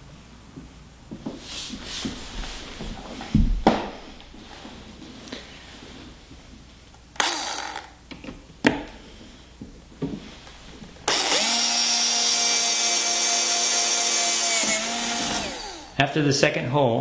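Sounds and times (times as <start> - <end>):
electric drill drilling: 7.2 - 8.0, 11.1 - 16.0.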